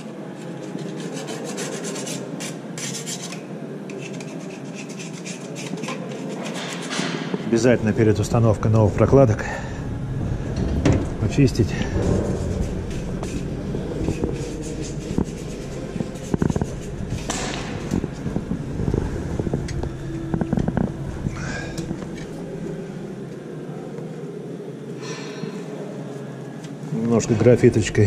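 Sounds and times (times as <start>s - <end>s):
low mechanical hum: 0.0s - 28.0s
metal scraping: 3.9s - 22.9s.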